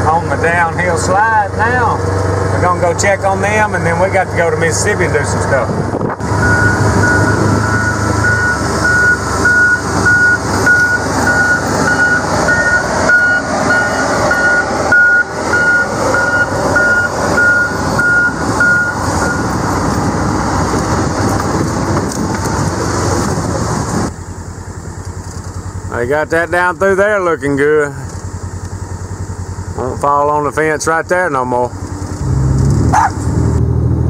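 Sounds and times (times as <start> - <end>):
farm vehicle engine and ride noise: 0.0 - 34.0
electronic warning beep: 6.4 - 19.5.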